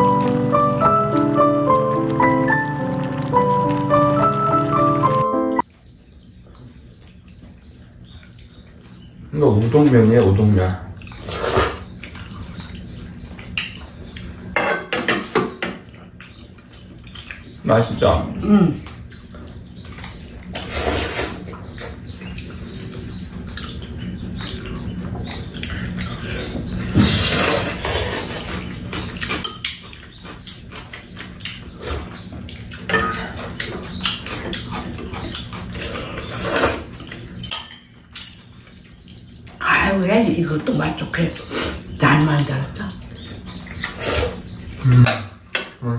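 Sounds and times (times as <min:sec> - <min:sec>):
people slurping noodles: 0:11.2 - 0:11.9, 0:35.8 - 0:36.9.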